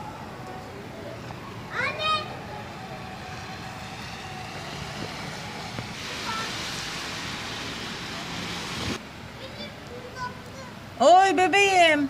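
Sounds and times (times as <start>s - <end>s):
distant traffic hum: 0.0s - 12.0s
hiss: 5.1s - 9.0s.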